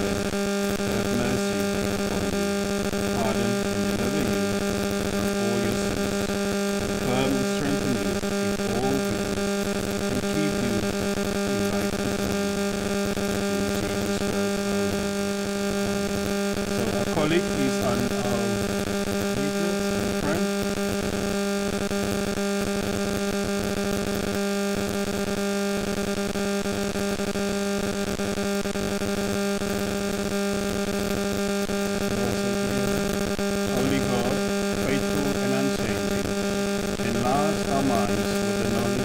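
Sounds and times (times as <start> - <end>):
loud electrical hum: 0.0 - 39.0
faint man's voice: 0.8 - 4.6, 5.2 - 6.1, 7.0 - 9.3, 10.1 - 12.5, 13.4 - 14.9, 16.7 - 20.5, 32.0 - 36.4, 37.0 - 39.0.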